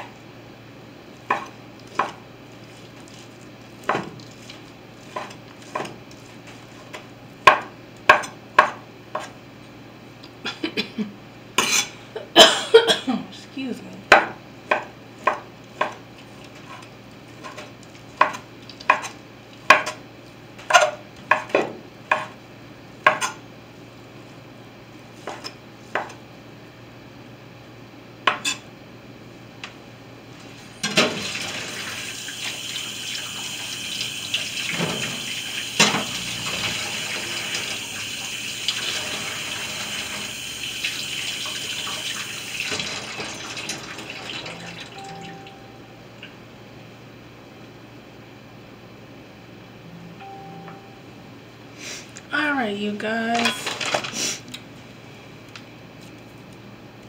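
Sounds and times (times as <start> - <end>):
knife chopping on a counter: 1.3 - 2.2, 5.1 - 6.0, 6.8 - 9.4, 14.1 - 16.0, 17.4 - 20.0, 20.6 - 22.4, 23.0 - 23.4, 25.2 - 26.2.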